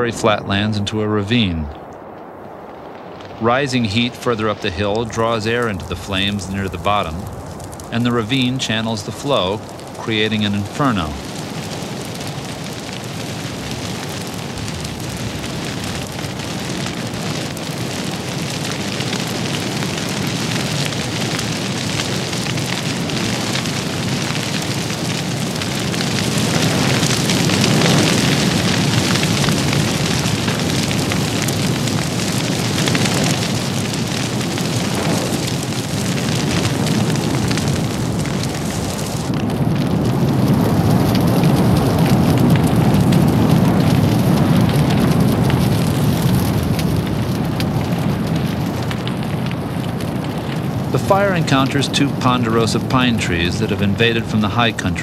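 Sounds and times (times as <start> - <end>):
grass fire crackling: 0.0 - 55.0.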